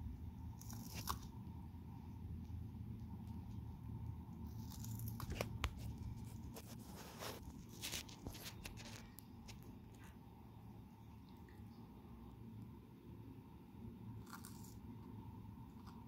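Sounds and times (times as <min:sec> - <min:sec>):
low steady hum: 0:00.0 - 0:16.0
turtle crunching and tearing leaf: 0:00.4 - 0:01.4, 0:04.4 - 0:09.0, 0:14.2 - 0:14.9.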